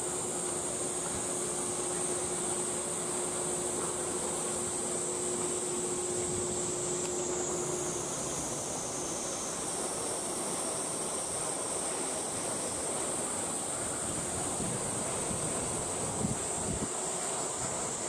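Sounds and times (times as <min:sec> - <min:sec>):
high-pitched hiss: 0:00.0 - 0:18.0
wind on microphone: 0:14.0 - 0:17.0.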